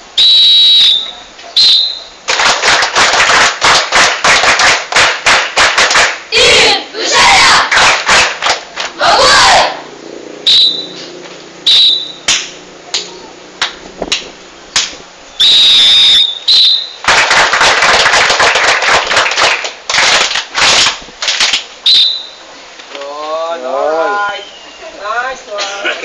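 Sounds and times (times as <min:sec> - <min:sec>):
shrill whistle blasts: 0:00.2 - 0:02.2, 0:10.4 - 0:11.0, 0:11.6 - 0:12.3, 0:15.3 - 0:17.0, 0:21.8 - 0:22.5
crowd noise: 0:06.2 - 0:26.0.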